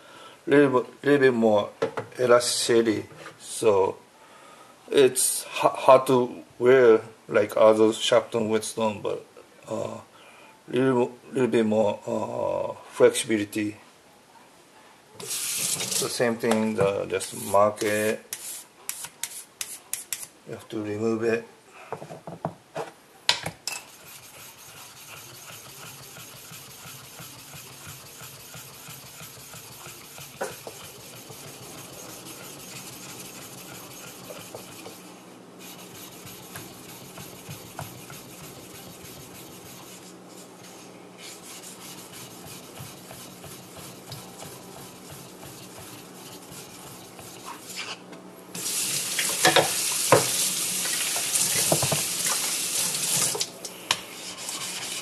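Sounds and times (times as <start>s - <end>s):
whetstone rubbing: 23.7s - 35.0s
running water hiss: 48.6s - 53.4s.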